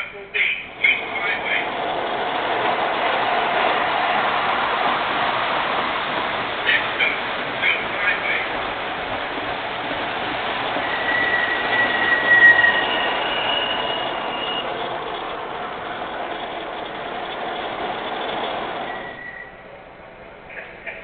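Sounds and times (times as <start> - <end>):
model train rumbling on track: 0.0 - 21.0
high squealing tones: 10.6 - 19.6.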